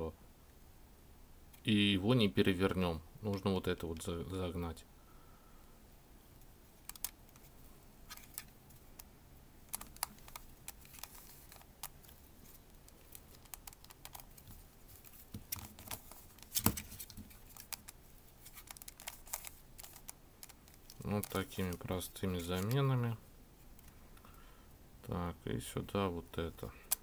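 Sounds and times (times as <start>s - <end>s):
plastic puzzle clicking: 6.8s - 7.5s, 9.7s - 12.2s, 12.9s - 14.4s, 18.6s - 21.8s.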